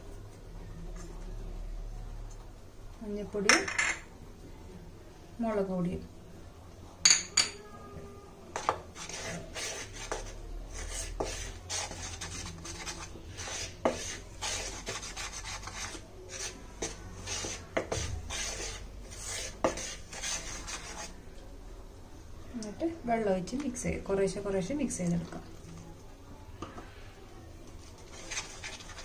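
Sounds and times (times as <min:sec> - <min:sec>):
spoon scraping powder in bowl: 0:08.5 - 0:21.2, 0:27.8 - 0:29.0.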